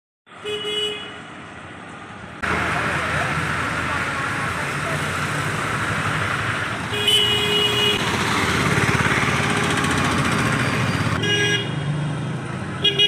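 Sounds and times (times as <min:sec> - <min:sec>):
vehicle horn: 0:00.3 - 0:01.2, 0:06.9 - 0:08.1, 0:11.2 - 0:11.8
road traffic passing: 0:00.3 - 0:13.0.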